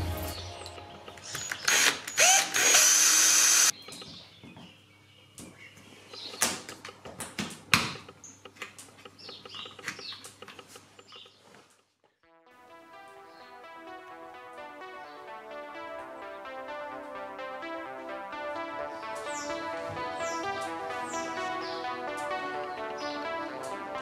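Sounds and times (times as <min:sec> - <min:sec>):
cordless drill boring: 0:01.4 - 0:03.7.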